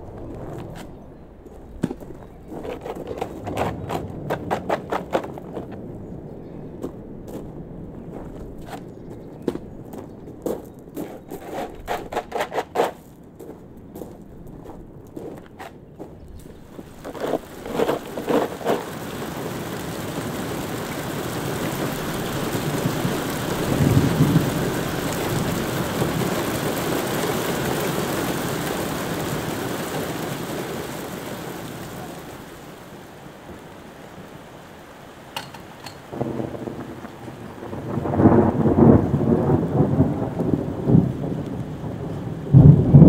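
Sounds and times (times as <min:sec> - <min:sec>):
low rumble of thunder: 0:00.0 - 0:11.0, 0:16.2 - 0:32.5, 0:36.1 - 0:43.0
steady rain falling: 0:00.0 - 0:11.6, 0:13.2 - 0:43.0.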